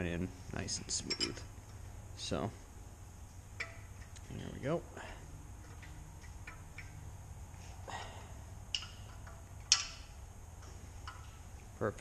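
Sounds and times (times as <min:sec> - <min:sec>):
low hum: 0:00.0 - 0:12.0
metal tools clinking: 0:01.0 - 0:01.5.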